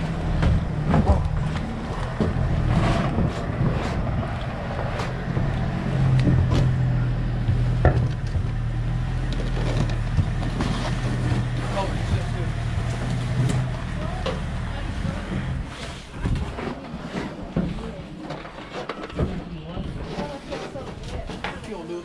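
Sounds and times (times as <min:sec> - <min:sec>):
boat motor running: 0:00.0 - 0:16.4.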